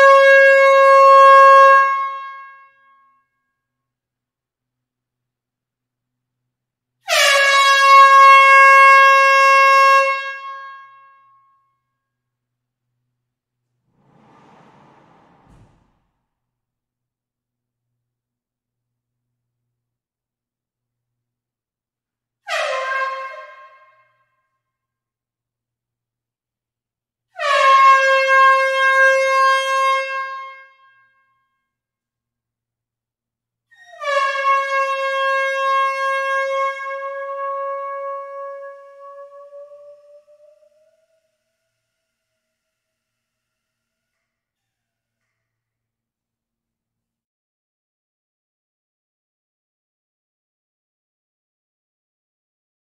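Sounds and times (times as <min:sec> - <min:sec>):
air horn blast in hall: 0:07.1 - 0:11.1, 0:13.8 - 0:16.1, 0:22.5 - 0:24.0, 0:27.4 - 0:30.9, 0:34.0 - 0:44.4.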